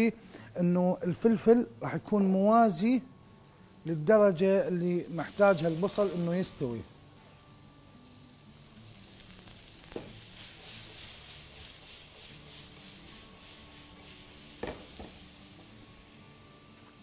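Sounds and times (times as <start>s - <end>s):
vegetables sizzling in oil: 3.9s - 17.0s.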